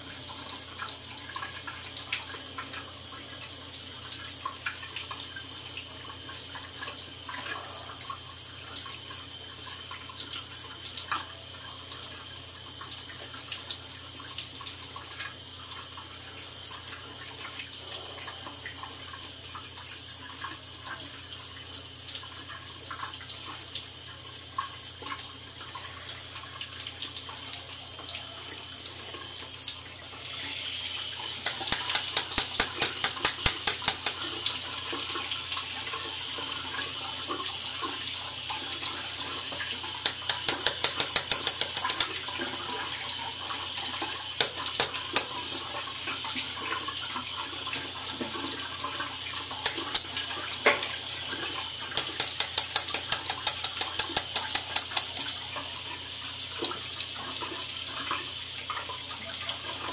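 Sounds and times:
tap running into sink: 31.2s - 35.3s, 38.8s - 42.9s, 44.0s - 45.6s, 47.7s - 55.4s.

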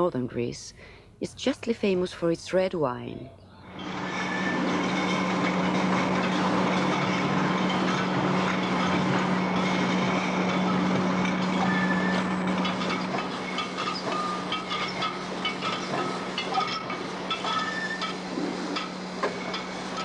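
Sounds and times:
bottling machine hum: 3.4s - 20.0s
glass bottles clattering: 4.6s - 19.7s.

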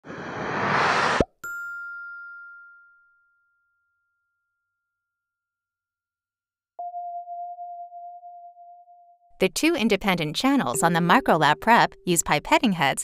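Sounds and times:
steady pure electronic tone: 9.6s - 12.8s.

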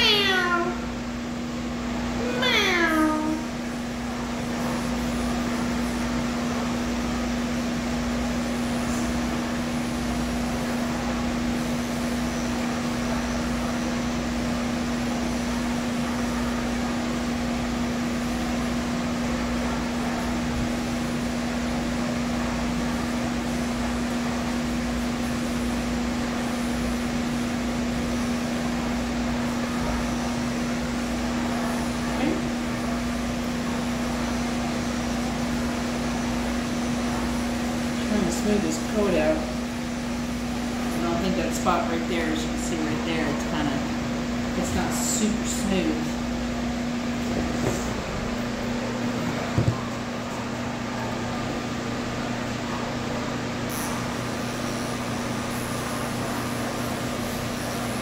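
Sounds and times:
pet clippers humming: 2.2s - 3.5s.

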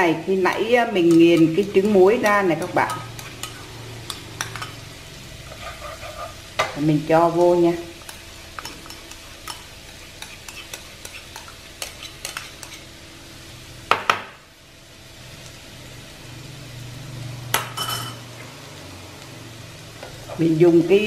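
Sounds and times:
butter sizzling in a wok: 0.0s - 21.0s.

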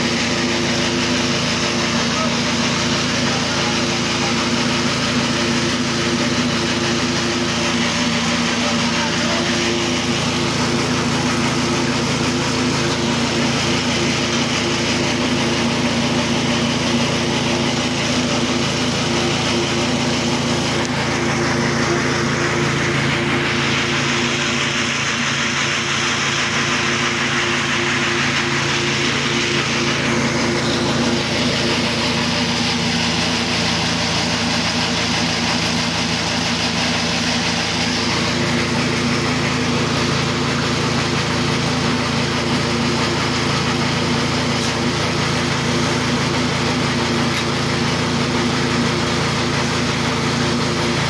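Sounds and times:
motor humming steadily: 0.0s - 51.0s.

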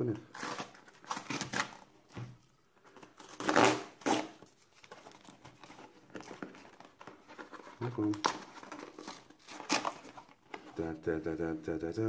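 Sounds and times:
cardboard box ripping: 0.3s - 1.8s, 3.2s - 4.4s
scratching and crinkling: 0.3s - 11.0s.

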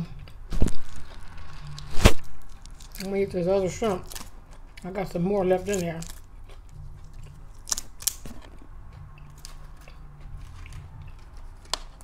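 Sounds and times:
shrimp shell crunching: 5.6s - 8.6s.

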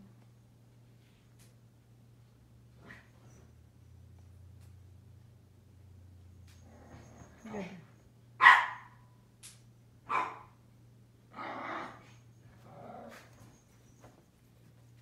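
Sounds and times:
dog barking: 8.4s - 9.1s, 10.1s - 10.6s.

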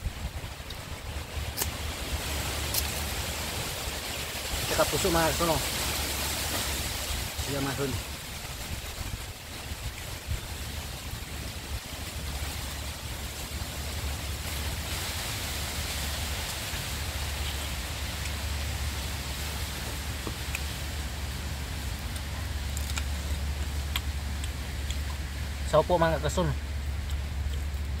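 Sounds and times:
outdoor hiss and rumble: 0.0s - 28.0s
leaf wrapper rustling and crinkling: 21.8s - 25.1s.

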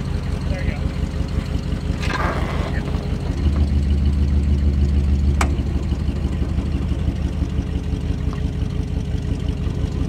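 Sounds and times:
truck engine running: 0.0s - 10.0s.

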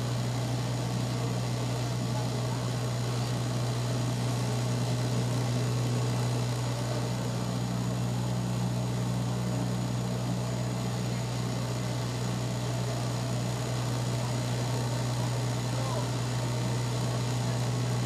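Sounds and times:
turboprop engine drone in cabin: 0.0s - 18.0s.

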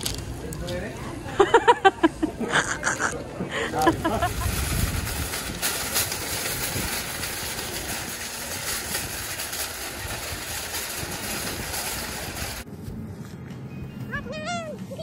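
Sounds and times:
shopping cart rattling on asphalt: 0.0s - 1.8s, 3.7s - 12.7s.

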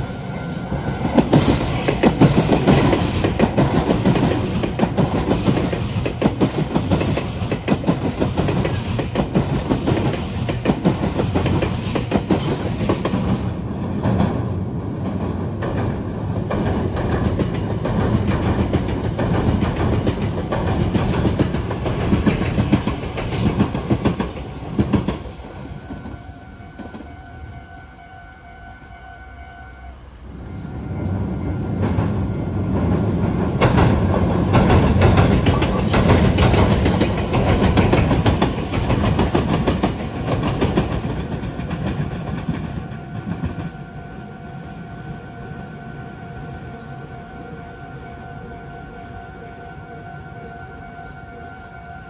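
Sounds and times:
electric train passing: 0.0s - 52.0s
wheels clattering over rail joints: 1.2s - 25.4s, 31.8s - 43.9s
faint steady high tone: 43.8s - 52.0s.

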